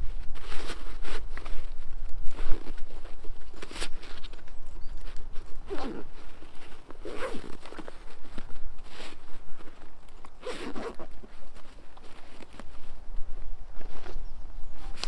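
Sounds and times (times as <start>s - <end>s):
fabric rustling: 0.0s - 15.0s
zipper being pulled shut: 5.6s - 9.2s, 10.2s - 12.7s.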